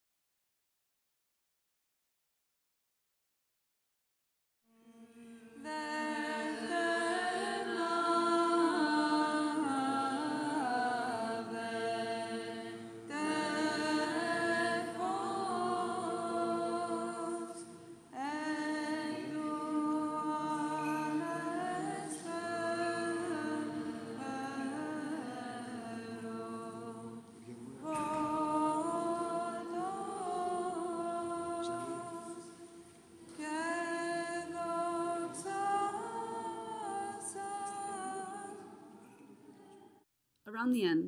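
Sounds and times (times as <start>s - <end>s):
low held vocal drone: 4.7s - 32.6s
voices chanting a melody: 5.7s - 27.1s.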